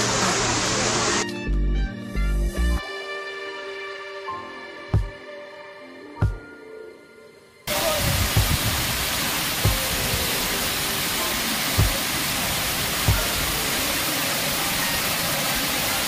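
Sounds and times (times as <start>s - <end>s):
waterfall rushing: 0.0s - 1.2s, 7.7s - 16.0s.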